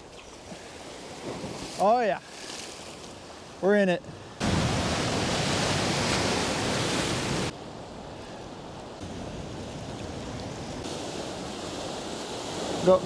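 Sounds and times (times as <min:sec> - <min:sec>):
soft wash of waves: 0:00.0 - 0:13.0
surf breaking against rocks: 0:04.4 - 0:07.5, 0:09.1 - 0:13.0.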